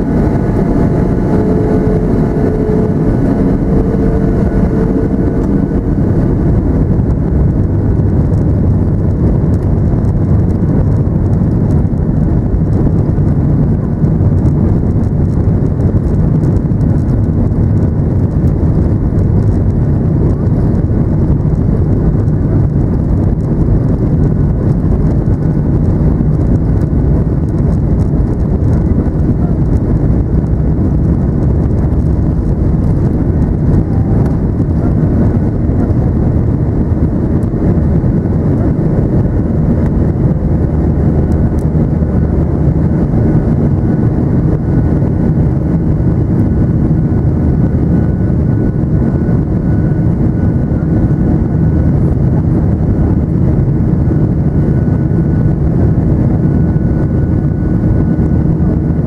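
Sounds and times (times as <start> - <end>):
faint high whine: 0.0 - 7.8
jet engines roaring in cabin: 0.0 - 59.0.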